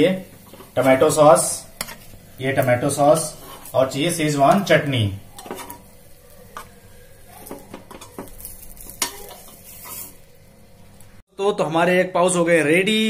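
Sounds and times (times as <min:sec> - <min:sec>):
kitchenware clicks and taps: 0:07.4 - 0:09.6.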